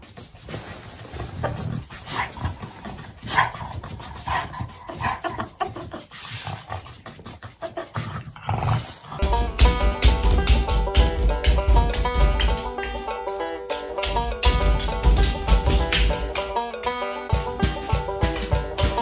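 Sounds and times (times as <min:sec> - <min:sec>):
dog panting: 0:00.0 - 0:09.4.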